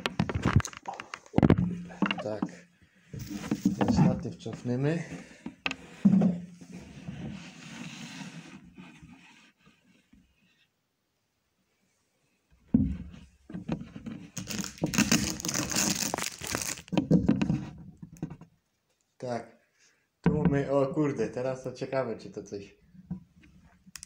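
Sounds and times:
thump: 12.7 - 13.1.

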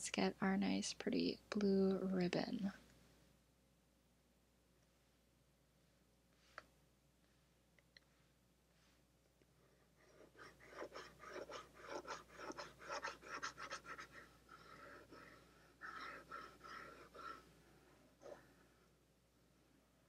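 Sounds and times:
stylus scratching on tablet: 10.0 - 17.5.

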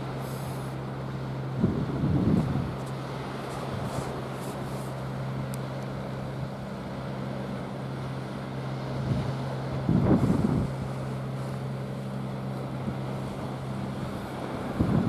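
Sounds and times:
distant boat motor hum: 0.0 - 15.0
sea noise: 0.0 - 15.0
wind noise on microphone: 1.5 - 3.0, 8.9 - 11.4, 12.9 - 15.0.

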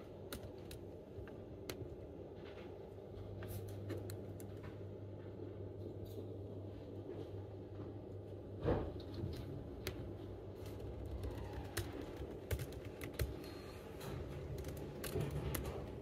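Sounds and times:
laptop keyboard typing: 0.0 - 2.0, 9.8 - 16.0
steady low hum: 0.0 - 16.0.

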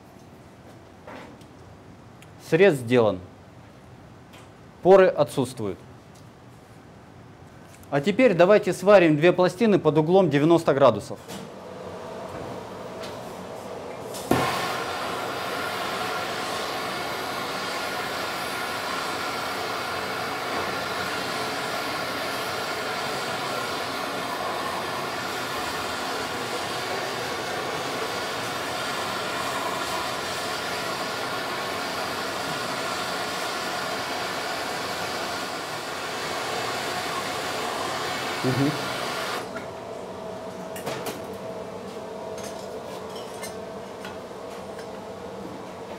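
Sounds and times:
gas torch flame hiss: 14.1 - 39.5.

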